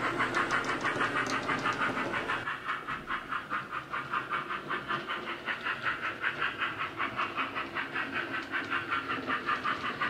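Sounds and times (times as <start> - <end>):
model locomotive steam chuffs: 0.0 - 10.0.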